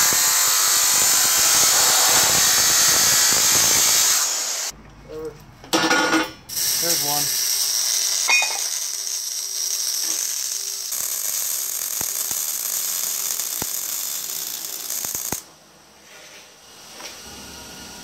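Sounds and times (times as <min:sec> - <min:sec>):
welding arc crackling and hissing: 0:00.0 - 0:04.7, 0:06.5 - 0:15.5
welding pops: 0:09.9 - 0:15.5.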